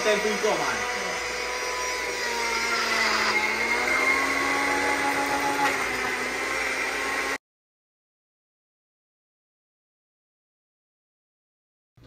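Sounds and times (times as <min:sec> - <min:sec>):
blender running: 0:00.0 - 0:07.4.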